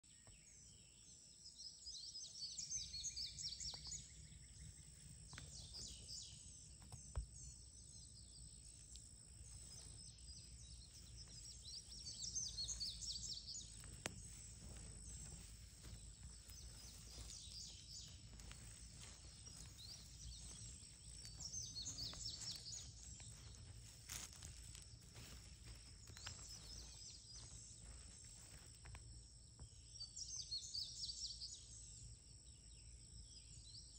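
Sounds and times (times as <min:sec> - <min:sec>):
birds chirping: 0:00.2 - 0:32.1.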